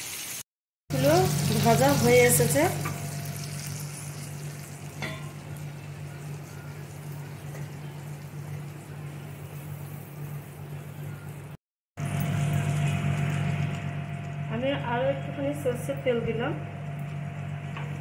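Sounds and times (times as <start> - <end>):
prawns sizzling in oil: 0.0 - 14.6
steady low hum: 0.9 - 18.0.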